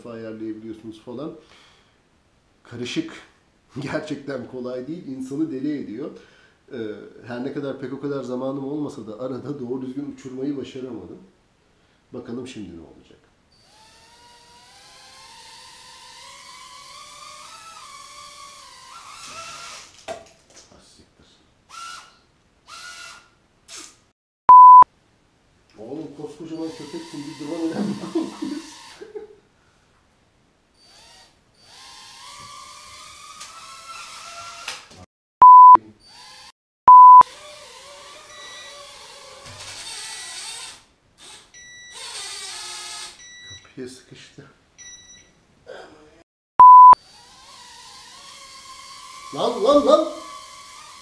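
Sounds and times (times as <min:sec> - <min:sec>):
pure tone beep: 0:24.5 - 0:24.8, 0:35.4 - 0:35.8, 0:36.9 - 0:37.2, 0:46.6 - 0:47.0
quadcopter motors buzzing: 0:26.7 - 0:29.2, 0:47.0 - 0:51.0.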